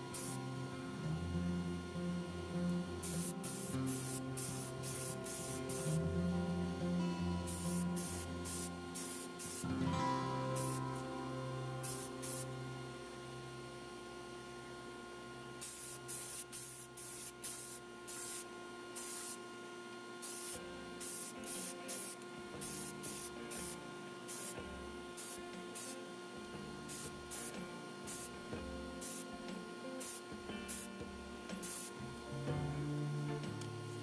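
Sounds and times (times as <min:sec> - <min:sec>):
steady hum: 0:00.0 - 0:34.0
paint spray hissing bursts: 0:00.1 - 0:00.4, 0:03.0 - 0:06.0, 0:07.5 - 0:09.7, 0:10.5 - 0:11.0, 0:11.8 - 0:12.5, 0:15.6 - 0:19.4, 0:20.2 - 0:24.6, 0:25.2 - 0:26.0, 0:26.9 - 0:28.3, 0:29.0 - 0:29.3, 0:30.0 - 0:30.9, 0:31.5 - 0:32.0.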